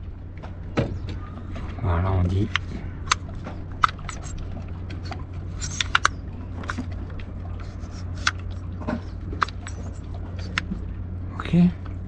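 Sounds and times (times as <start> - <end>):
steady low hum: 0.0 - 12.0
sharp plastic clicks: 2.5 - 6.9, 7.8 - 10.8.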